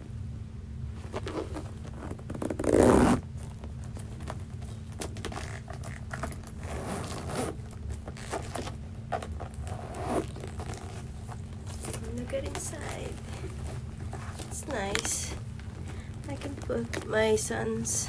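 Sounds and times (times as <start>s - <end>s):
bag rustling: 1.0s - 17.4s
backpack zipper being pulled: 1.1s - 3.2s, 5.3s - 7.6s, 9.2s - 11.1s.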